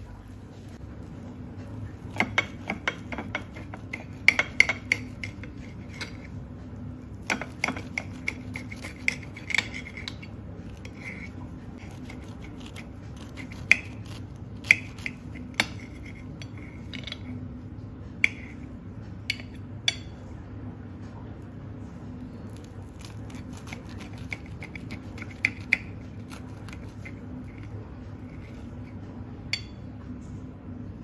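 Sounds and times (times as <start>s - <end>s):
steady low hum: 0.0s - 31.0s
knife cutting crisp toast: 1.8s - 6.4s, 7.1s - 17.2s, 22.4s - 29.0s.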